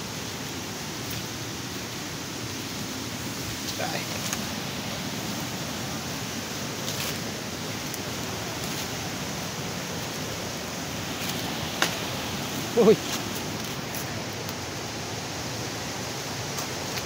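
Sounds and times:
creek water rushing: 0.0 - 17.0
footsteps on leaf litter: 3.3 - 14.6.

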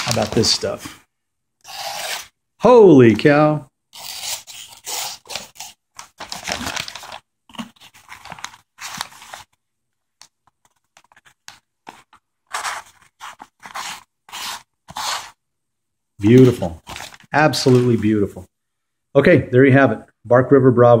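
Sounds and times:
knife slicing through paper: 12.5 - 15.4.

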